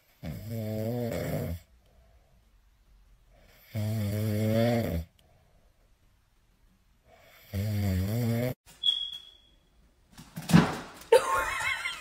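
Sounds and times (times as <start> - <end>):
kitten snoring: 0.2 - 1.7.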